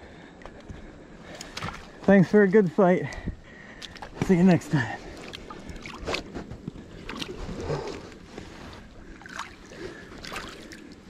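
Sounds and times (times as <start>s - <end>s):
river water splashing: 1.2s - 11.0s.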